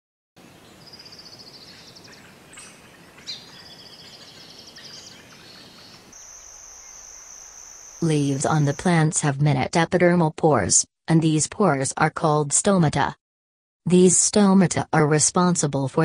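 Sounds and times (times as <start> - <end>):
steady background hiss: 0.4 - 8.8
birds chirping: 0.4 - 9.0
steady high tone: 6.2 - 9.0.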